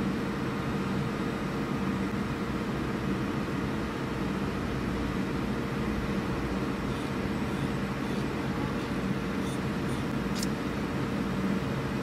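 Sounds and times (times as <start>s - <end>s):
router machine hum: 6.0s - 10.6s.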